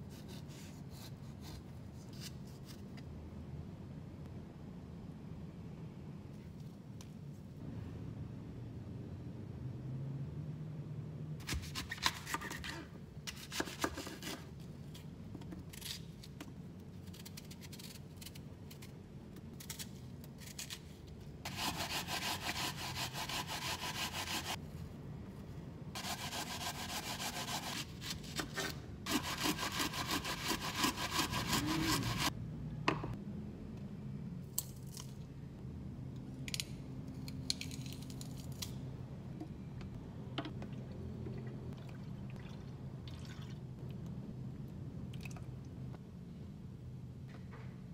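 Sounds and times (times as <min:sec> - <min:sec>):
pear rasping on grater: 0:29.1 - 0:32.3.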